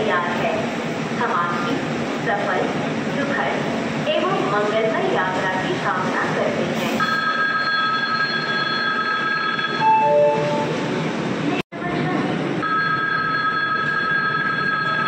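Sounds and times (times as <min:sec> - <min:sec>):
train rumble: 0:08.6 - 0:12.8
lower warning tone: 0:09.7 - 0:10.8
high two-note warning tone: 0:09.8 - 0:10.8.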